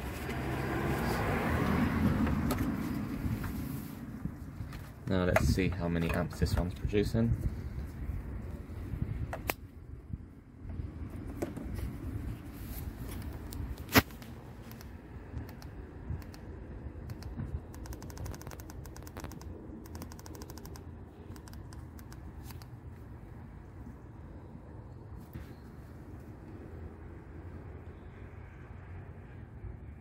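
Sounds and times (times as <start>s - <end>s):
handling clicks and knocks: 4.7s - 6.9s
rapid even ticks: 14.2s - 22.7s.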